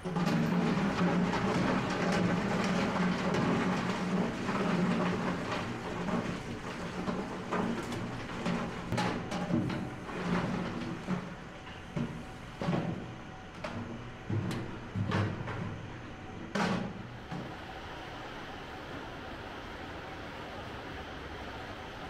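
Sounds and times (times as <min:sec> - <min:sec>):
machinery clatter and rattling: 0:00.0 - 0:17.6
factory machinery humming: 0:00.0 - 0:22.0.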